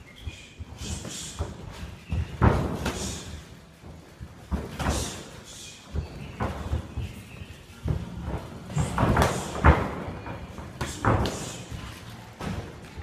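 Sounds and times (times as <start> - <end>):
kicks and punches on pads: 1.4 - 3.3, 7.8 - 13.0.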